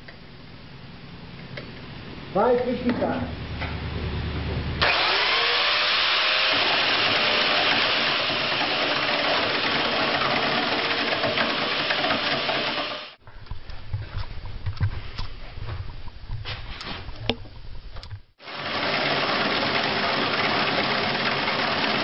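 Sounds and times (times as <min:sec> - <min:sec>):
low hum of lathe: 0:03.6 - 0:13.2, 0:18.4 - 0:22.0
chainsaw cutting wood: 0:04.8 - 0:13.2, 0:18.4 - 0:22.0.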